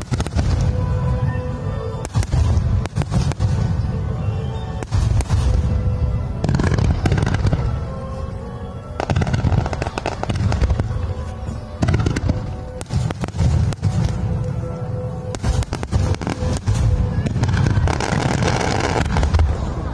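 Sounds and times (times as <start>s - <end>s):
fireworks bangs and crackles: 0.0s - 19.9s
music playing: 0.0s - 19.9s.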